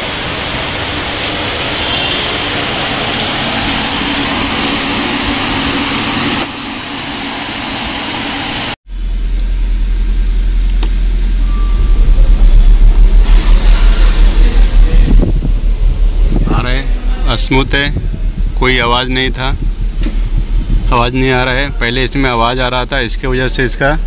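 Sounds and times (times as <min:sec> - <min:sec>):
rushing fan noise: 0:00.0 - 0:24.0
faint hum: 0:02.9 - 0:24.0
air blowing on microphone: 0:11.4 - 0:22.3.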